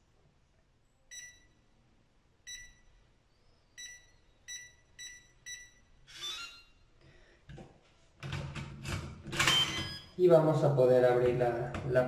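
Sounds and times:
keypad beeps: 1.1 - 1.6, 2.5 - 3.0, 3.8 - 6.7, 9.4 - 10.2.

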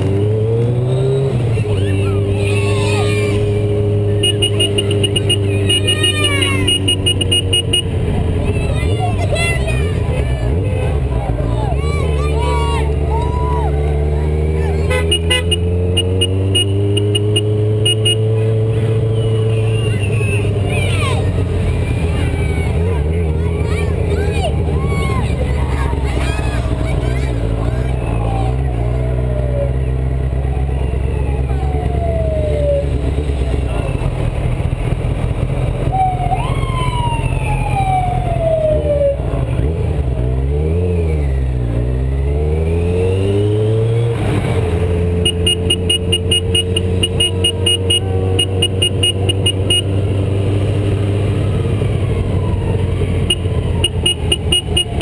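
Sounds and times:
motorcycle engine running: 0.0 - 55.0
siren in falling sweeps: 30.6 - 32.9, 36.0 - 39.2, 51.6 - 53.9.

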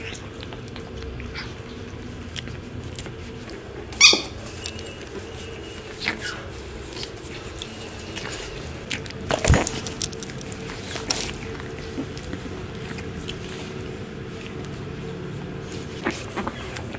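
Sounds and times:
puppies scuffling: 1.3 - 16.9
puppy high squeak: 4.0 - 4.4
puppy thin falling squeal: 4.0 - 4.4.

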